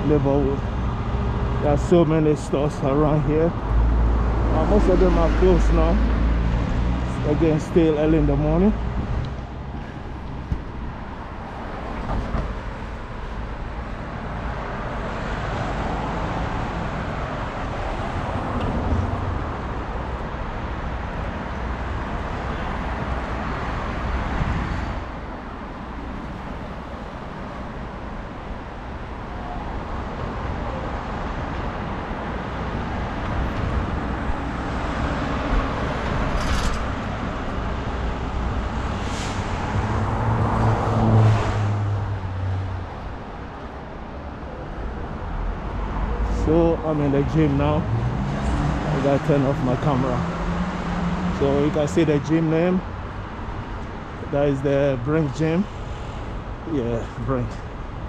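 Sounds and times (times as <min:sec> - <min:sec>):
cars passing: 0:00.0 - 0:58.0
low traffic rumble: 0:00.0 - 0:58.0.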